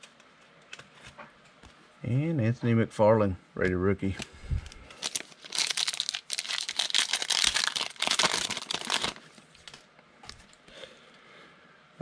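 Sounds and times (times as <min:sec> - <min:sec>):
foil wrapper tearing and crinkling: 0:04.9 - 0:09.8.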